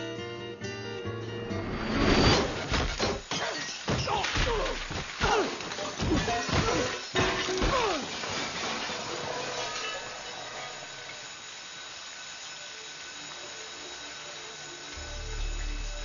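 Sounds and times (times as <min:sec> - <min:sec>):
debris crashing down: 0:02.2 - 0:09.9.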